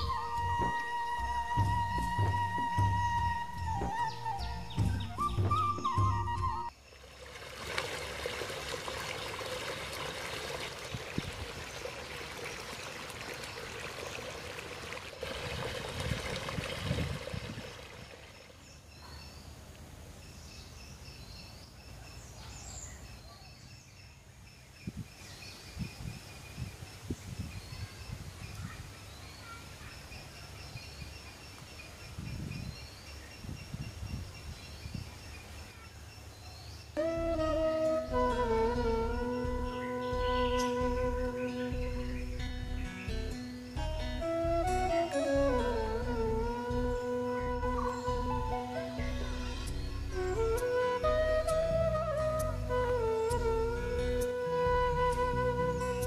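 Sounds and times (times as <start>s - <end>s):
water pouring: 7.0s - 18.6s.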